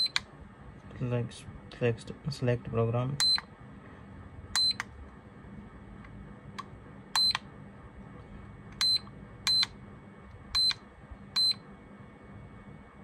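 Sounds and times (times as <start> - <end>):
charger button beeps: 0.0 - 0.2, 3.2 - 3.5, 4.6 - 4.9, 7.1 - 7.4, 8.8 - 9.8, 10.5 - 10.8, 11.4 - 11.6.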